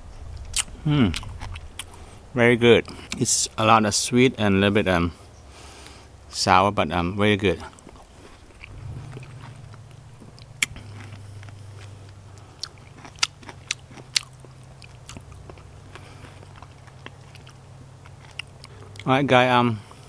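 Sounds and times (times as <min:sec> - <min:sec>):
low steady hum: 0:00.0 - 0:20.0
person chewing wet fruit: 0:00.4 - 0:02.2, 0:07.6 - 0:09.6, 0:10.2 - 0:19.1.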